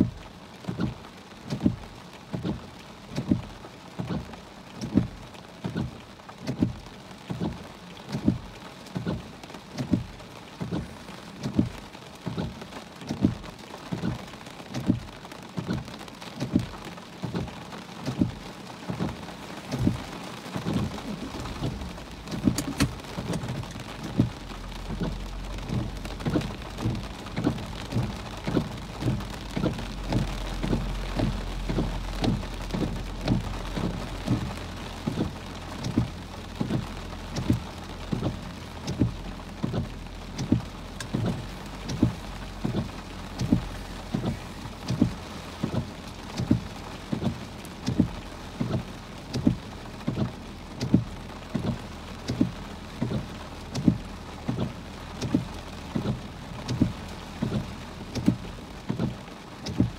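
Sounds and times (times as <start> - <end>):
heavy rain on car windshield: 0.0 - 59.9
low steady rumble: 0.0 - 59.9
regular low thump: 18.1 - 59.9.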